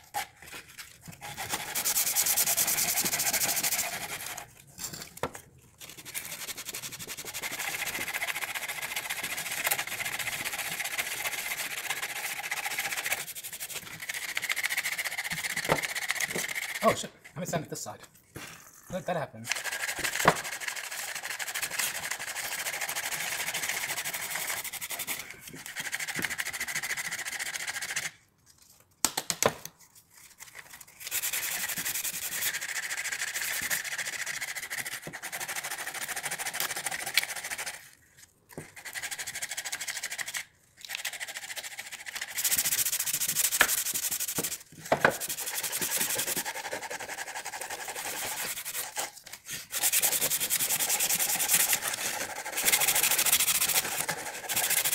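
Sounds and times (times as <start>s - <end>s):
sandpaper rasping on wood: 1.2s - 4.5s, 6.0s - 17.1s, 31.0s - 37.7s, 41.5s - 54.9s.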